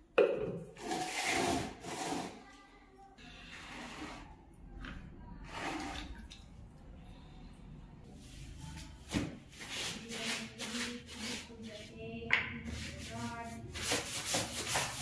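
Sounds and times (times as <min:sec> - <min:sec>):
wet clothes scrubbed on concrete: 0:12.7 - 0:15.0.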